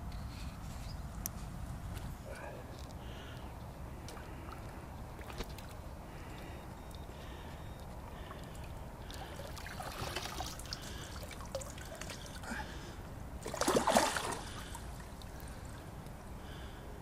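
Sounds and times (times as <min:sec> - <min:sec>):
water trickling and dripping: 0:08.3 - 0:12.5
fish splashing into water: 0:13.4 - 0:14.8.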